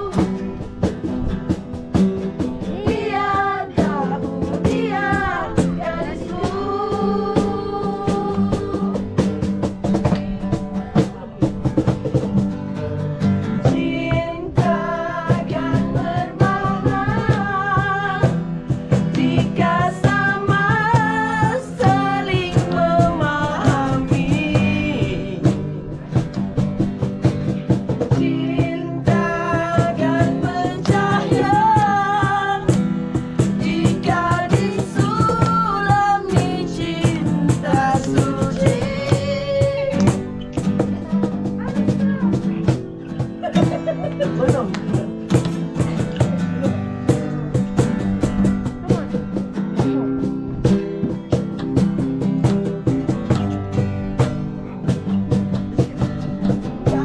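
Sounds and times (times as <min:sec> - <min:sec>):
group of voices singing: 0:00.0 - 0:00.6, 0:02.5 - 0:09.4, 0:13.5 - 0:26.0, 0:28.1 - 0:40.8, 0:56.7 - 0:57.0
acoustic guitars strumming: 0:00.0 - 0:57.0
hand claps: 0:39.9 - 0:41.0, 0:44.0 - 0:46.4.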